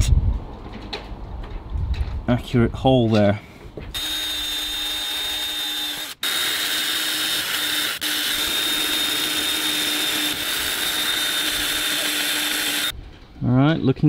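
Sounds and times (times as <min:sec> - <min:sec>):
cordless drill whining: 0:04.0 - 0:12.9.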